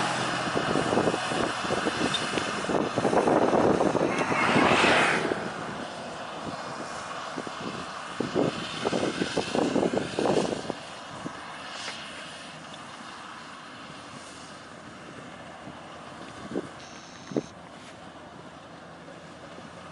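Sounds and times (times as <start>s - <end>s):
combine harvester running: 0.0s - 19.9s.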